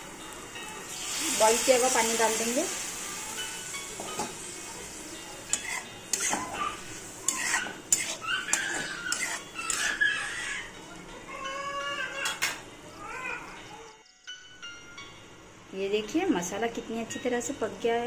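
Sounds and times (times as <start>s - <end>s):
spatula clinking against pan: 5.4s - 10.6s
spatula scraping a pan: 5.5s - 10.5s.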